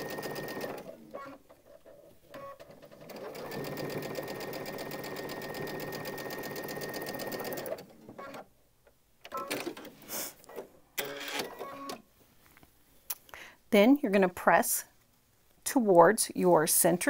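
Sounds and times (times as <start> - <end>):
sewing machine stitching: 0.0 - 8.4.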